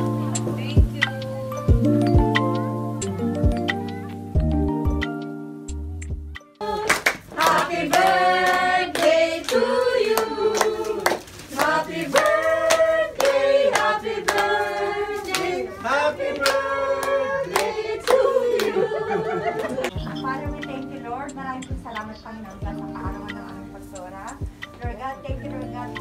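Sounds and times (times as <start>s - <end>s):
group of people singing: 6.6s - 19.9s
people clapping along: 6.6s - 20.0s.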